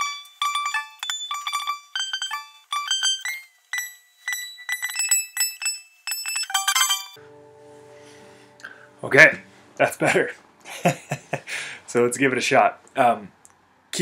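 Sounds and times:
guitar strum: 7.1s - 10.6s
guitar strings plucked while tuning: 7.2s - 10.4s.

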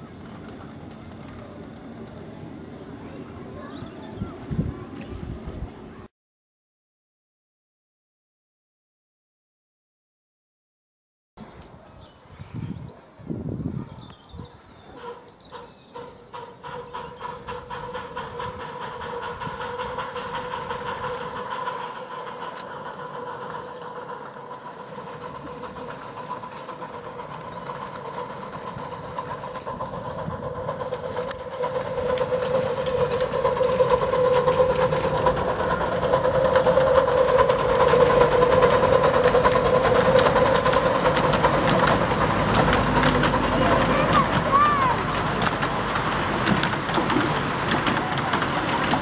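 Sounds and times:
steam locomotive rapid beat: 14.9s - 49.0s.

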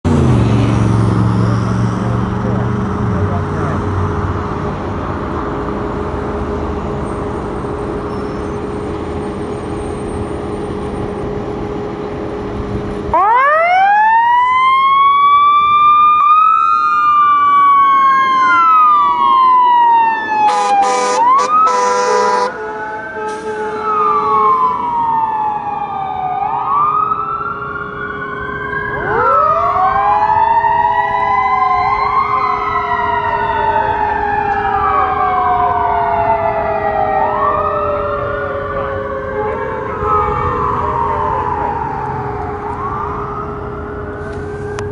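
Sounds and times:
engine rumble: 0.0s - 13.8s
sirens wailing: 0.1s - 44.9s
short horn blasts: 20.5s - 23.7s.

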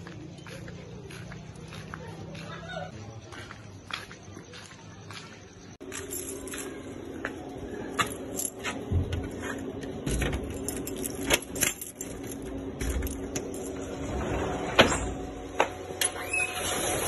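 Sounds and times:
steady low hum: 5.5s - 16.0s
keys jangling: 5.8s - 6.9s, 7.9s - 14.0s.

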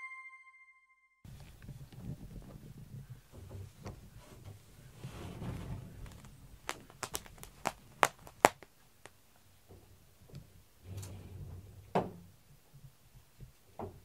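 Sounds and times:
sharp taps: 6.6s - 9.2s.

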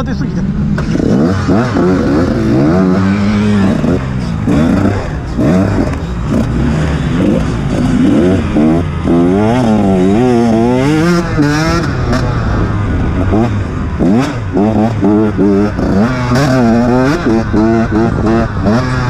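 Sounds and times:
dirt bike engine revving: 0.0s - 19.0s.

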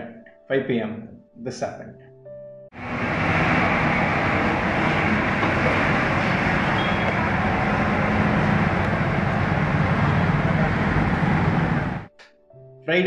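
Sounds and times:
diesel locomotive engines droning: 2.8s - 12.1s
trains rumbling: 2.8s - 12.1s.

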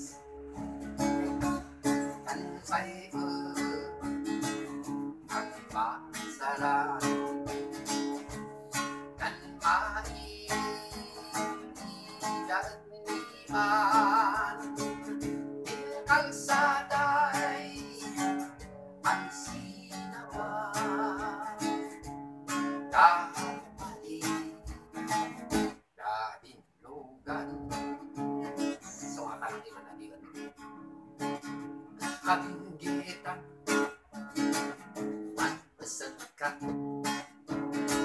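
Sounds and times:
acoustic guitar strumming: 0.0s - 26.4s, 27.2s - 38.0s
man singing: 1.4s - 30.6s, 32.0s - 33.9s, 34.5s - 38.0s.

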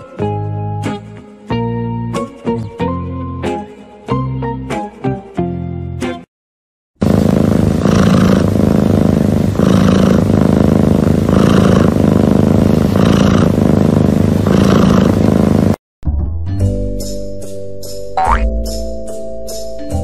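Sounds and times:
cat purring loudly: 7.0s - 15.8s.

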